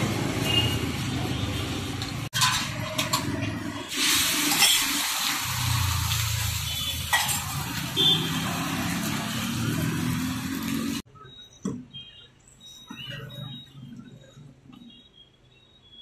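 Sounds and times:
egg sizzling in oil: 3.9 - 11.0.

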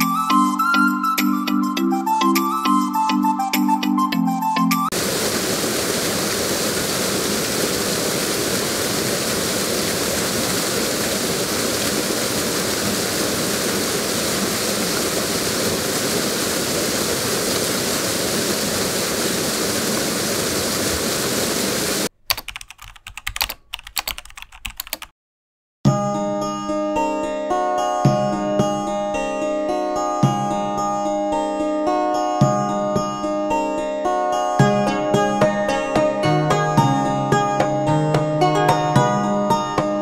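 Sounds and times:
waterfall pouring: 4.9 - 22.1
irregular clicking: 22.2 - 25.1.

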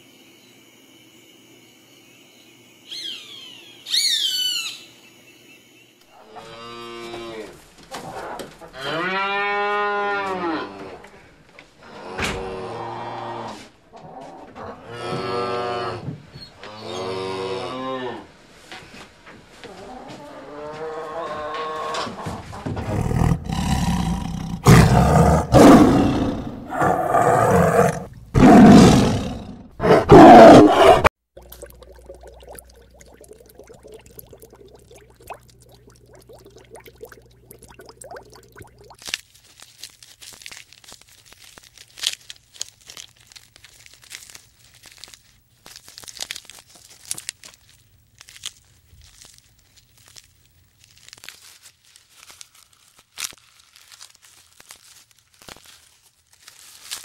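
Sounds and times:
tiger roaring: 22.8 - 31.1.

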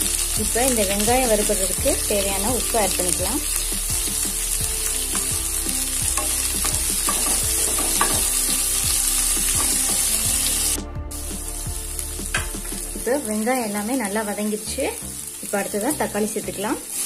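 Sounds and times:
onions sizzling in hot oil: 0.0 - 17.0
spatula knocking and scraping pan: 6.1 - 8.6, 9.4 - 10.1.

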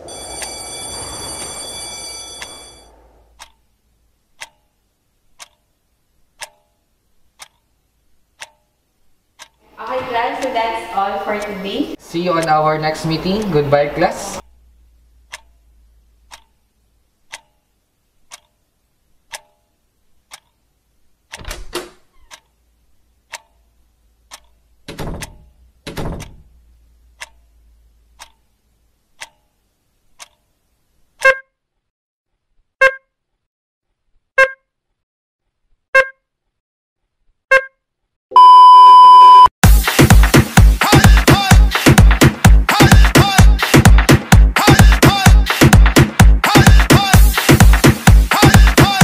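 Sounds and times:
clock ticking: 3.4 - 21.4, 22.3 - 31.4, 39.6 - 49.0
loud electronic beeps: 38.4 - 39.5.

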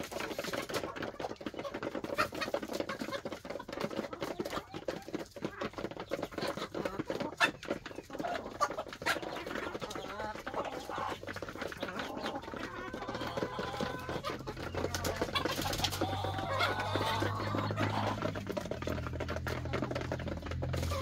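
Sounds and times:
hens clucking: 0.0 - 21.0
hens pecking taps: 0.0 - 21.0.

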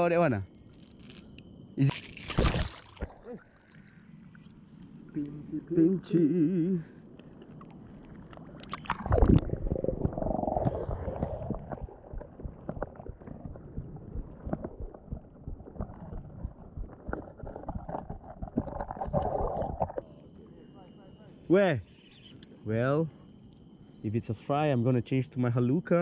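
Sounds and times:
camera splashing into water: 2.2 - 3.3
underwater gurgling rumble: 2.4 - 20.7
small underwater clicks: 7.1 - 20.0.

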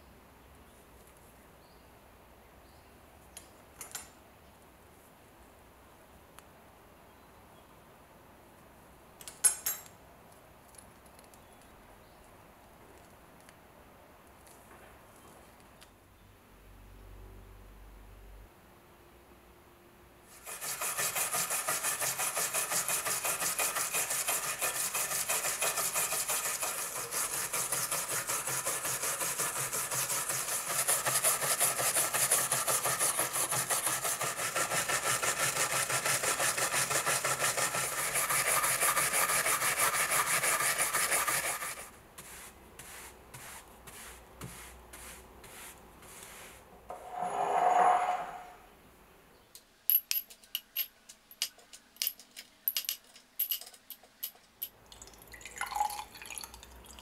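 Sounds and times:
brush scrubbing rusty metal: 20.3 - 46.7.

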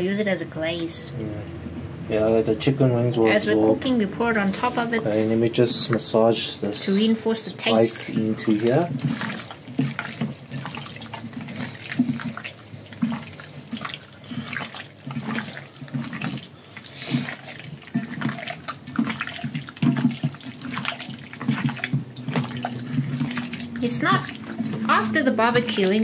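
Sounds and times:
wet squelching of marinated chicken: 6.8 - 26.0.

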